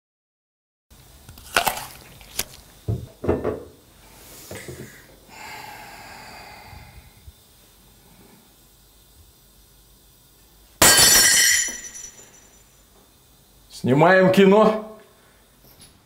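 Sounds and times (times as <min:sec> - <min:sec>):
apple bite crunching: 0:01.3 - 0:02.6
steady ringing tone: 0:10.8 - 0:12.9.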